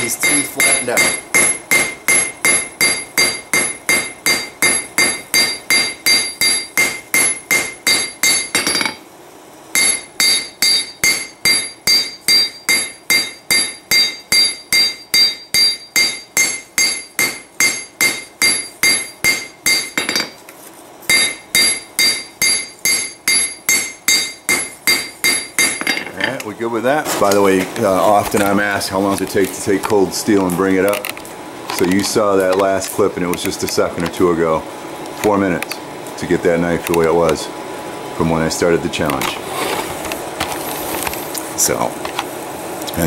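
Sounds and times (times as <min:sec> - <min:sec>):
hammer striking metal on anvil: 0:00.0 - 0:09.0, 0:09.8 - 0:20.4, 0:21.1 - 0:26.2.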